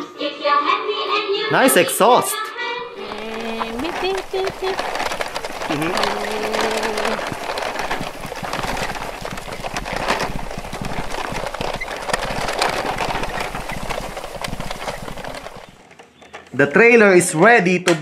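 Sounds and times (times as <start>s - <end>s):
toy vehicle rattling: 2.9s - 16.8s.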